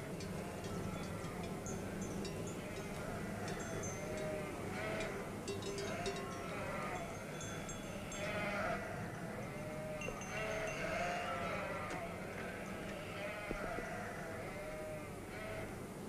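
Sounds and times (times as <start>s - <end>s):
sheep bleating: 2.6s - 7.2s, 8.0s - 15.7s.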